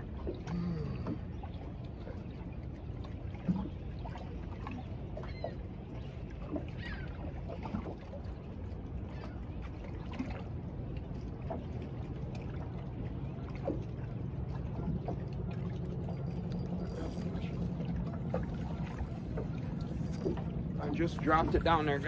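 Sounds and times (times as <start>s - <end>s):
water lapping against boat hull: 0.0s - 22.0s
steady low hum: 10.6s - 22.0s.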